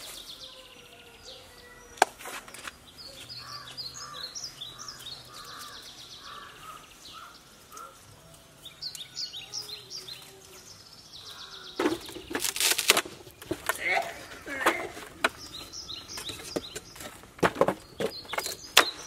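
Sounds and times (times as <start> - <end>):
high bird chirps: 2.8 - 8.0
sharp crack: 11.8 - 15.4.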